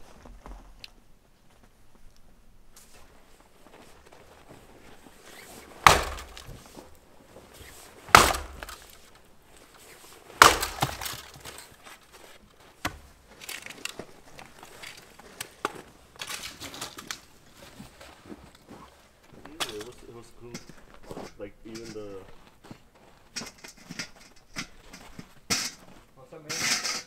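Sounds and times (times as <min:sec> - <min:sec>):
hard strikes: 0:05.8 - 0:06.7, 0:08.1 - 0:09.0, 0:10.4 - 0:11.4
light knocks and cracks: 0:05.8 - 0:07.0, 0:08.1 - 0:09.2, 0:10.4 - 0:11.8.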